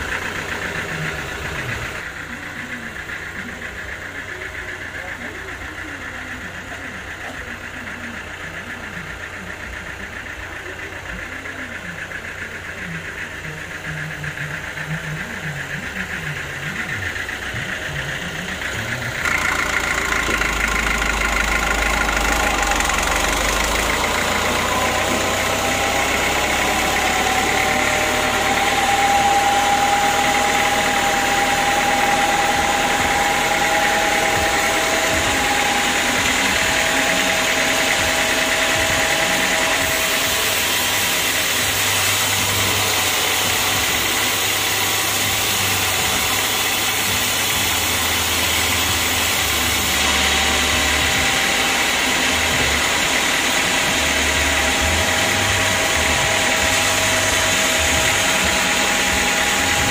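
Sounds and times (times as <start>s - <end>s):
band sawmill droning: 0.0s - 59.9s
high whining tone: 0.0s - 59.9s.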